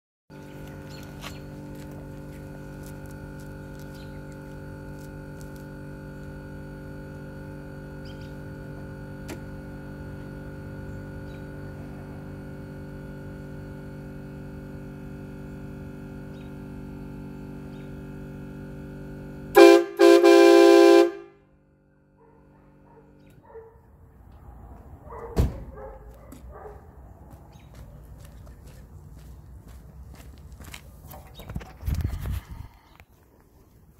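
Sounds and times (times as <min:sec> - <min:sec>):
train horn blasts: 0:19.5 - 0:21.6.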